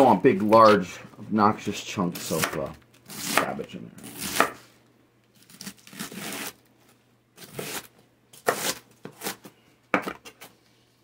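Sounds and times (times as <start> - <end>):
knife cutting cabbage: 2.2 - 4.7, 5.4 - 6.6, 7.4 - 9.5.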